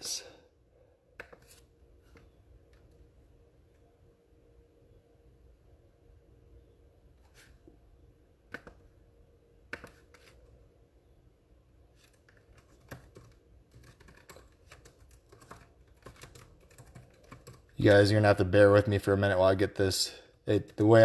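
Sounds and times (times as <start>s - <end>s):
faint laptop keyboard typing: 11.9s - 18.0s.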